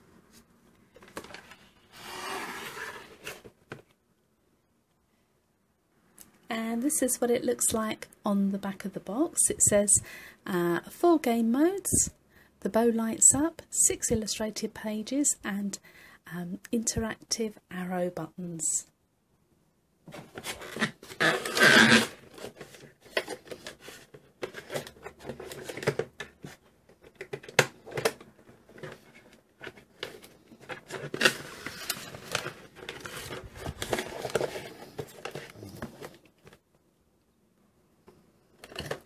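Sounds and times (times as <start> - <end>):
toy packaging rustling: 20.2 - 36.6.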